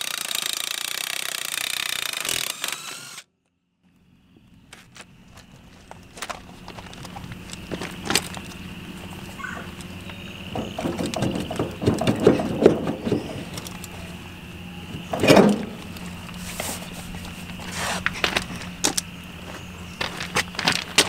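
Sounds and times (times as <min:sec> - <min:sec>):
hands knocking on wheel: 0:09.4 - 0:13.6.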